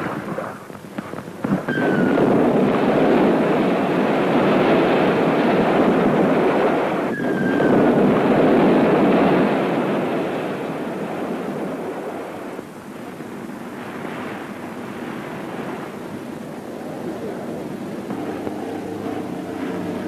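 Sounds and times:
faint falling whistle: 0:07.1 - 0:07.8
depth charge blasts roaring: 0:17.0 - 0:20.0.

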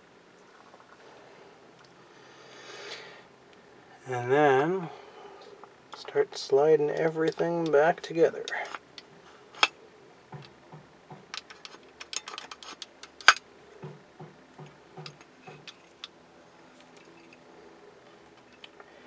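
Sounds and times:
small metal parts clinking: 0:11.2 - 0:13.4, 0:15.0 - 0:16.1, 0:16.8 - 0:17.5
sharp knocks: 0:13.8 - 0:15.7.

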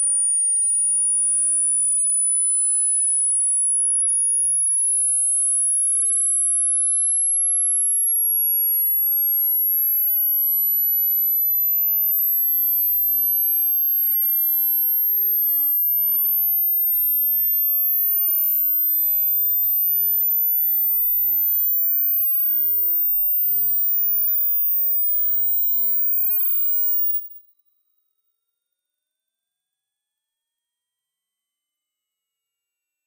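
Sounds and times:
rising sine test tone: 0:00.0 - 0:27.6.

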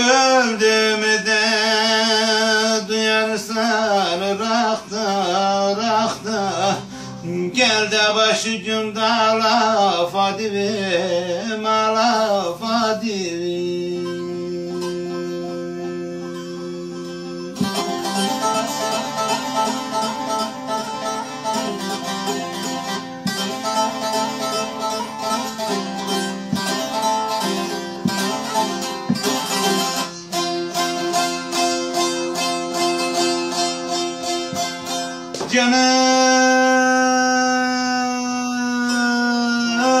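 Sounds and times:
long-necked lute played with plectrum: 0:00.0 - 0:40.0
man singing held note: 0:35.5 - 0:40.0.

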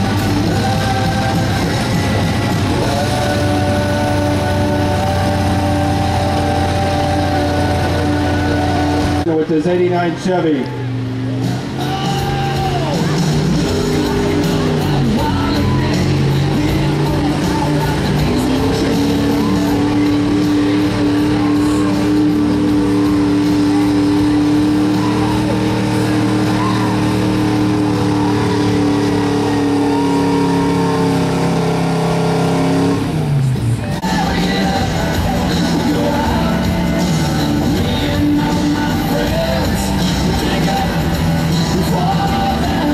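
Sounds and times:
truck engine at full throttle: 0:00.0 - 0:42.9.

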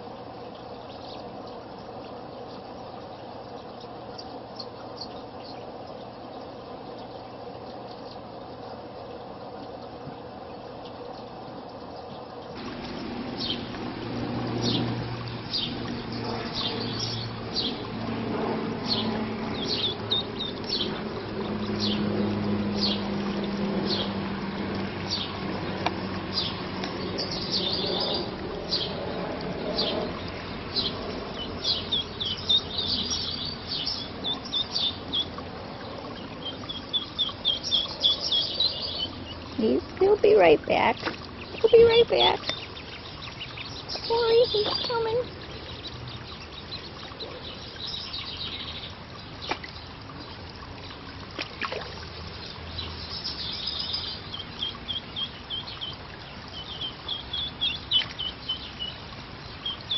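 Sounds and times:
low steady hum: 0:00.0 - 0:59.9
ducklings peeping: 0:30.8 - 0:35.4, 0:36.4 - 0:39.5.

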